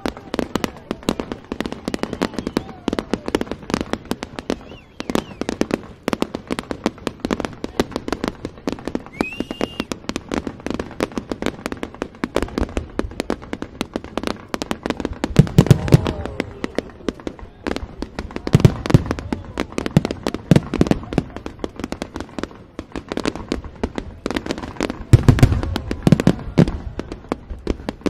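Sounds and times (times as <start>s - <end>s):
fireworks cracking and banging: 0.0s - 28.0s
heavy low firework booms: 0.0s - 28.0s
firework rising whistle: 1.7s - 3.1s, 4.4s - 5.7s, 9.0s - 10.0s.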